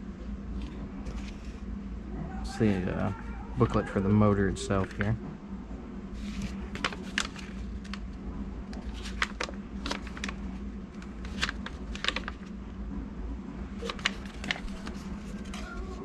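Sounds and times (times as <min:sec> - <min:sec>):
low hum: 0:00.0 - 0:16.0
paper rustling and crackling: 0:00.5 - 0:01.7, 0:02.5 - 0:05.2, 0:06.1 - 0:12.6, 0:13.8 - 0:16.0.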